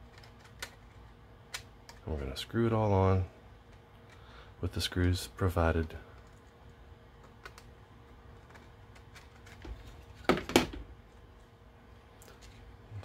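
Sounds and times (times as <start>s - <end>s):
sharp plastic clacks: 0.0s - 2.1s
plastic parts clicking: 0.1s - 2.1s.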